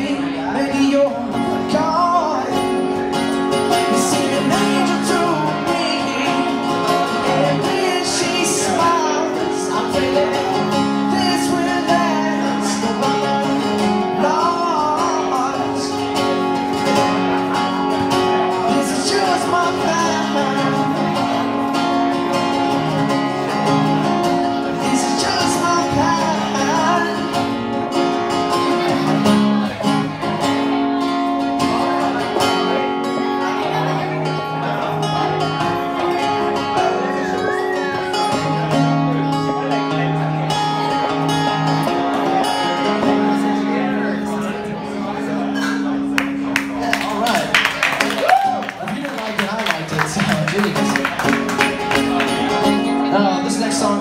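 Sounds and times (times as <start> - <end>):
man singing: 0.0 - 22.2, 23.4 - 29.1, 48.9 - 54.0
acoustic guitar: 0.0 - 54.0.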